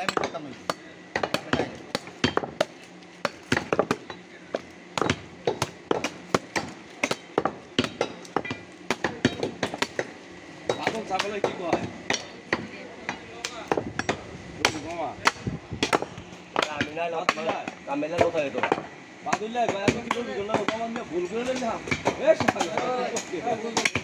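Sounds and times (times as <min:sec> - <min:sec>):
voices talking: 0:06.8 - 0:24.0.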